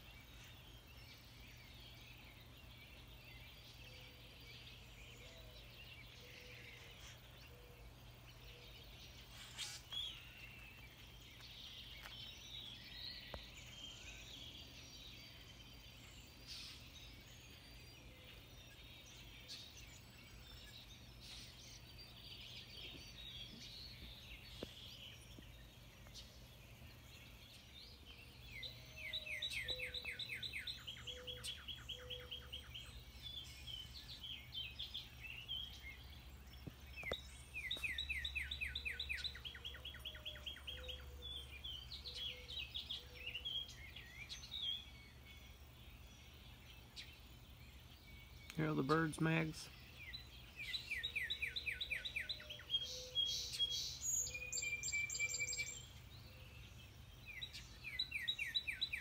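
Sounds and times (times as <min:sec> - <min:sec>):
bird song of slurred notes: 0:00.0 - 0:59.0
songbirds chirping: 0:00.0 - 0:59.0.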